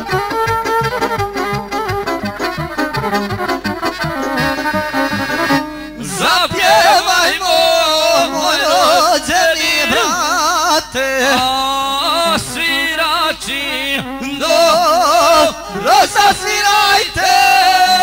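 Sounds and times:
folk instrumental accompaniment: 0.0 - 18.0
person singing with wide vibrato: 5.8 - 18.0.

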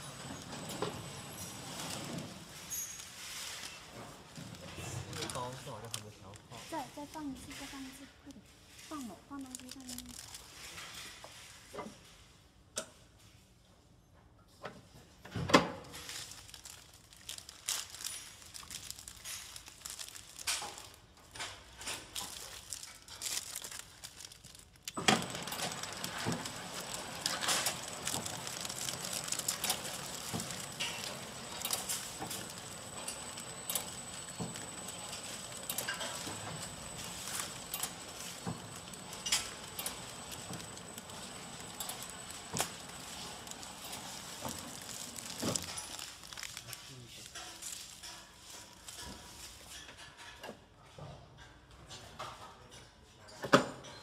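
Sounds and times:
wrapping machine clatter: 0.0 - 11.7, 15.8 - 50.1
thin high machine whine: 25.0 - 46.3.

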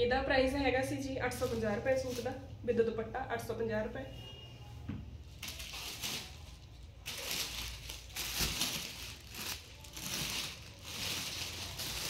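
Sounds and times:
cloth rustling: 5.4 - 12.0.

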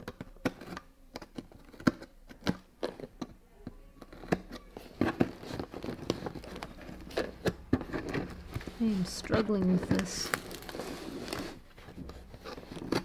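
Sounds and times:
rasping scrape: 10.4 - 13.0.

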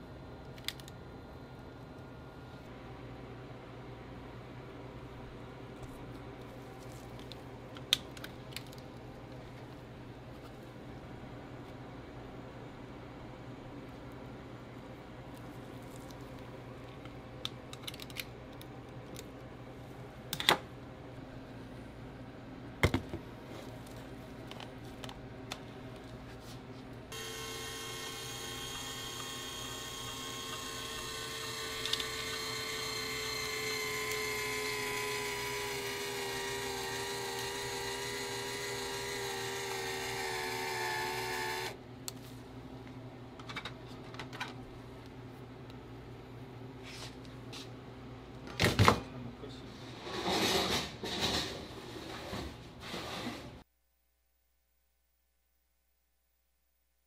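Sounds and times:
motor whining: 27.1 - 41.8.

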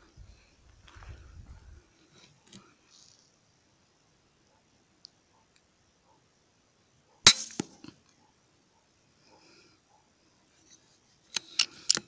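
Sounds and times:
air rifle firing: 7.3 - 7.7.

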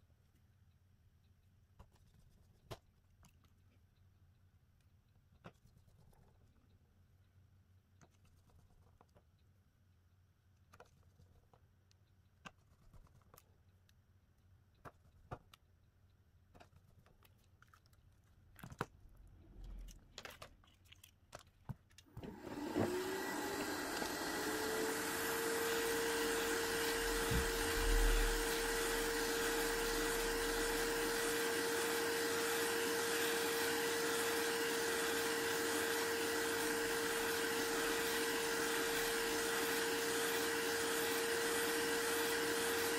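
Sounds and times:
electric blower motor whining: 22.2 - 42.9.

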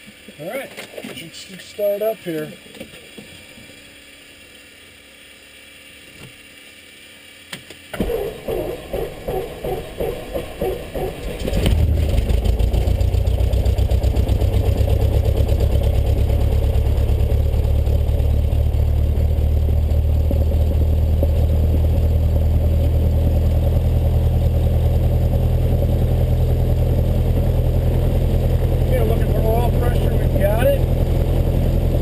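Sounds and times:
aircraft piston engine idling: 8.0 - 23.8, 25.2 - 32.0.

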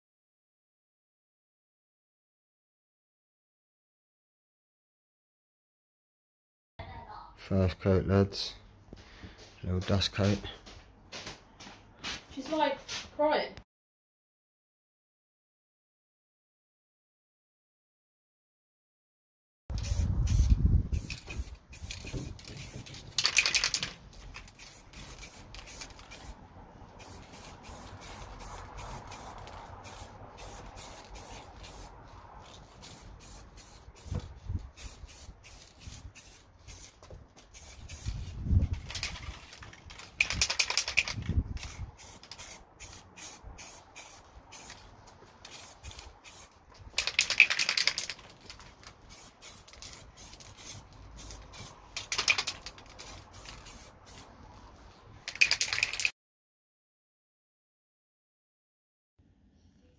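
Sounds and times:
spray paint can hissing: 19.7 - 26.4, 27.0 - 44.8, 45.4 - 54.3, 55.2 - 56.1.

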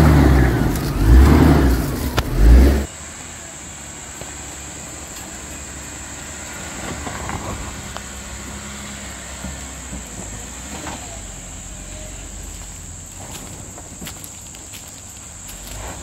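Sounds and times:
car engine running slowly: 0.0 - 16.0
running gear knocks and creaks: 12.5 - 16.0.

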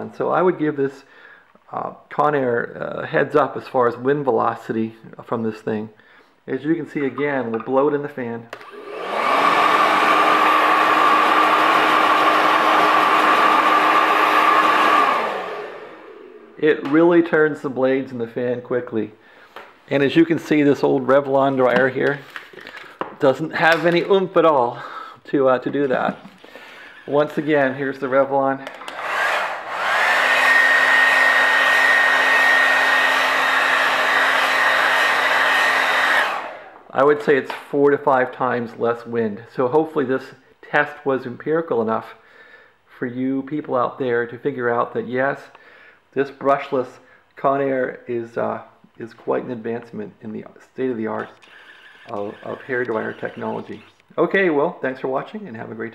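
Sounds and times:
hair dryer running: 8.6 - 16.6, 28.6 - 36.8, 51.4 - 54.0.

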